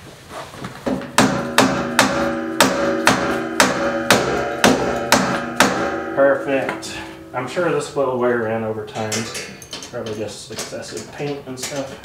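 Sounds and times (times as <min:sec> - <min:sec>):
hammer striking metal tube frame: 0:00.9 - 0:08.0, 0:08.9 - 0:10.2
metal tubing ringing: 0:01.0 - 0:10.3.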